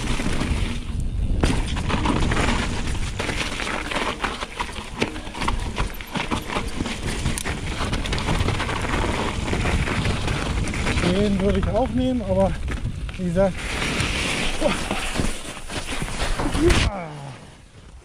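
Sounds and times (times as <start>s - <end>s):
bike clattering and knocking: 0.0s - 11.9s
bike tyres rolling over snow: 0.0s - 18.0s.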